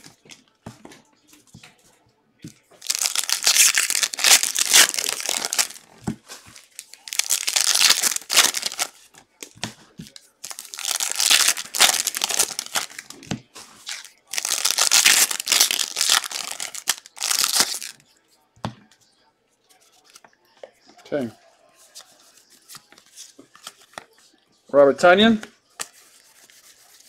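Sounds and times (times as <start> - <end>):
foil wrappers tearing and crinkling: 2.8 - 5.8, 6.6 - 8.9, 10.4 - 13.2, 13.8 - 18.0.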